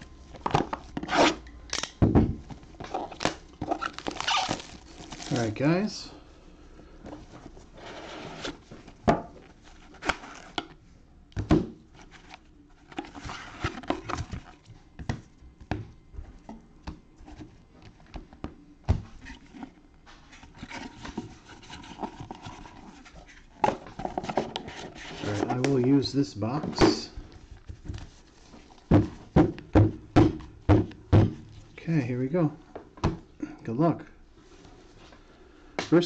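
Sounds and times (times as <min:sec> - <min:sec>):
cardboard rubbing and scraping: 0:07.3 - 0:08.8, 0:13.0 - 0:14.4, 0:19.2 - 0:25.8.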